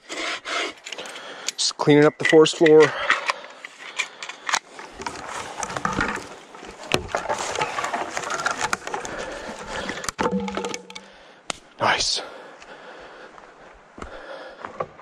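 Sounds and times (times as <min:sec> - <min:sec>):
sticks clicking and knocking: 0:00.9 - 0:11.6.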